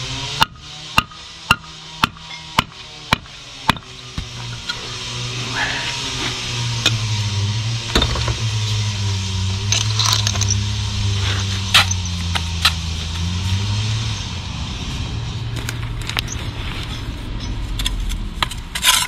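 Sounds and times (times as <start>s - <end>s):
engine running at low speed: 0.0s - 19.0s
sharp metallic clinks: 9.7s - 10.7s, 11.7s - 12.3s.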